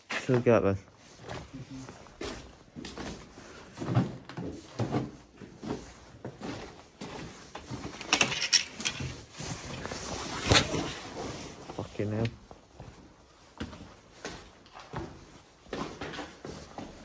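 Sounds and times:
clothing rubbing on microphone: 9.2 - 12.2.

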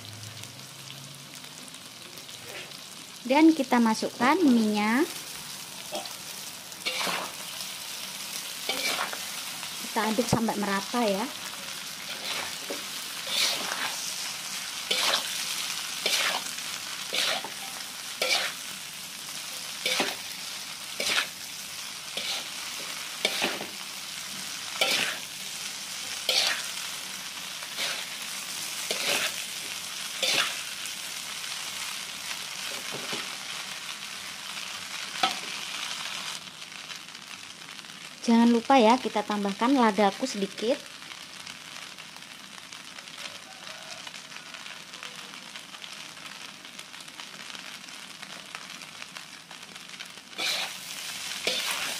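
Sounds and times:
noodles sizzling in a wok: 0.0 - 51.9
metal spatula scraping a pan: 6.8 - 7.5, 8.6 - 9.6, 11.7 - 18.6, 19.8 - 20.4, 21.0 - 21.4, 22.1 - 23.7, 24.7 - 25.3, 26.1 - 26.8, 27.7 - 30.7, 50.4 - 51.9.

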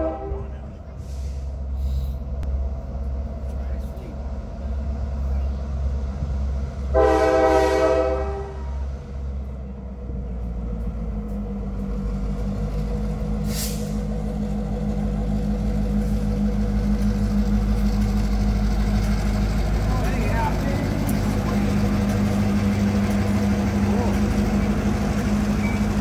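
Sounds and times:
locomotive horn blast: 0.0 - 0.7, 6.9 - 8.9
locomotive engine rumble: 0.0 - 26.0
brief hiss: 13.4 - 14.0.

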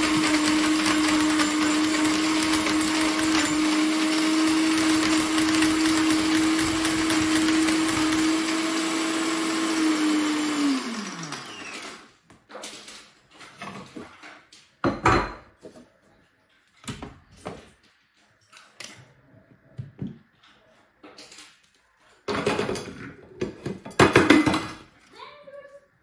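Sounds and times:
blender motor whining: 0.0 - 12.2.

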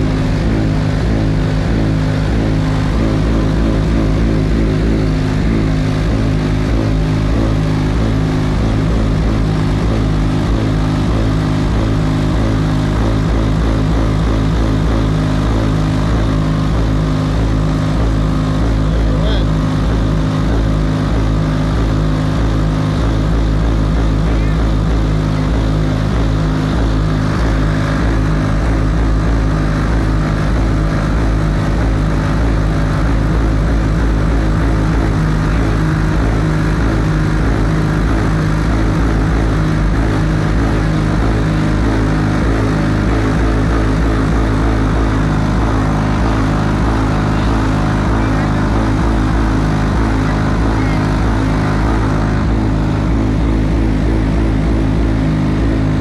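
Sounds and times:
loud subwoofer bass drone: 0.0 - 56.0.

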